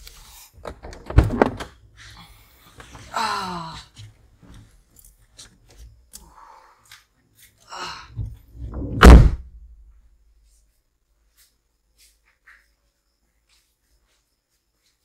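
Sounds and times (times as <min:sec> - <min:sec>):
heavy thud: 0:08.2 - 0:09.8.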